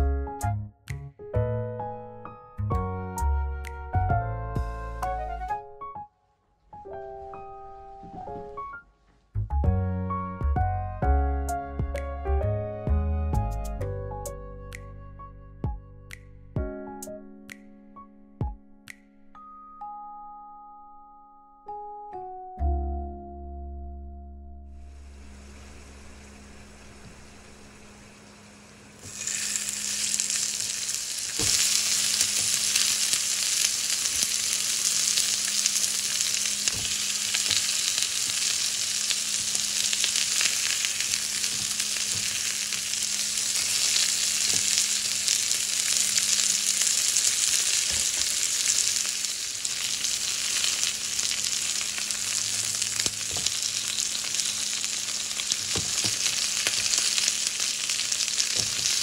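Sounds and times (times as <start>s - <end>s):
meat sizzling in a frying pan: 24.9s - 59.0s.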